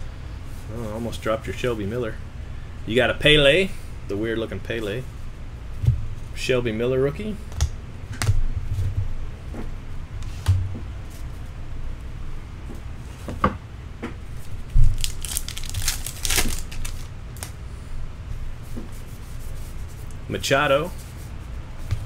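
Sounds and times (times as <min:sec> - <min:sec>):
wrapper tearing and crinkling: 0:14.4 - 0:17.5
cards rustling: 0:14.4 - 0:17.6.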